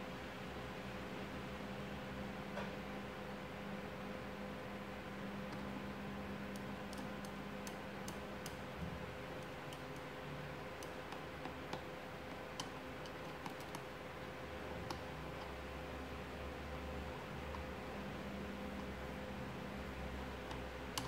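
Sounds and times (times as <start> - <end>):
faint steady hum: 0.0 - 21.0.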